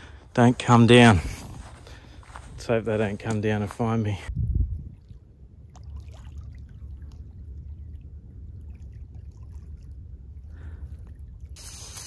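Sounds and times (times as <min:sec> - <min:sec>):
steady low rumble: 0:00.0 - 0:11.6
faint splashes: 0:04.9 - 0:11.6.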